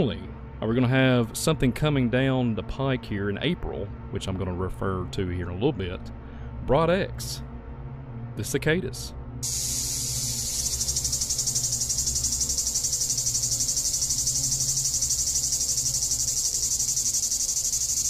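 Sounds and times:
cicada buzzing: 9.4 - 18.0.

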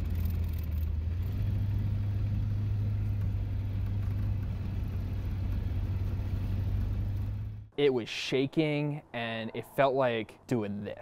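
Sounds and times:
car engine droning: 0.0 - 7.7
road noise: 0.0 - 11.0.

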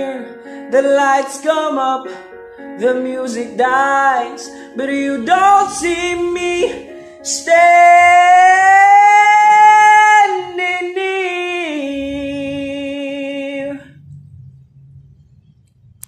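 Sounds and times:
man singing long held notes: 2.8 - 13.9.

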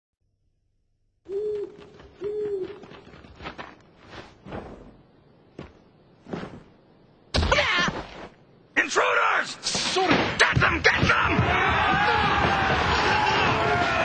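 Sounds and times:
owl hooting: 1.3 - 3.2.

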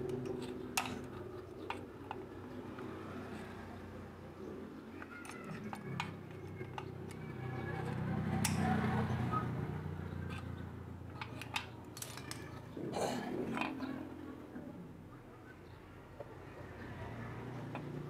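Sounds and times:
locking pliers clicking on metal: 8.4 - 8.7, 11.2 - 12.6.

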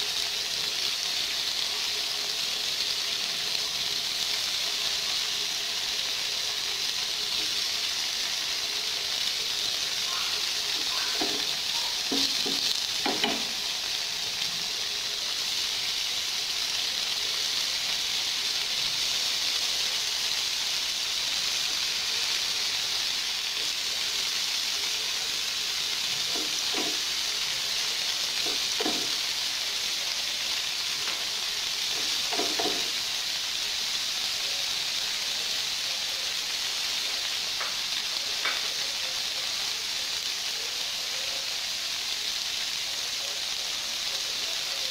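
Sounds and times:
tofu sizzling in oil: 0.0 - 44.9
knocks in a pan: 11.2 - 13.6, 26.3 - 27.1, 28.4 - 29.2, 32.0 - 33.0.

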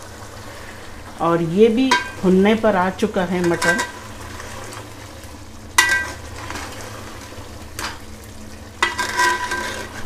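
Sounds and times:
meat sizzling: 0.0 - 10.0
metal ladle stirring in a pot: 5.8 - 6.8, 8.8 - 10.0.

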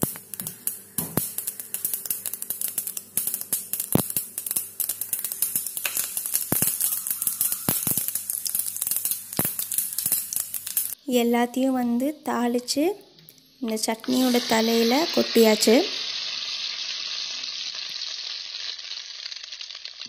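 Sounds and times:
hot oil crackling in pan: 0.0 - 11.0, 13.7 - 20.0.

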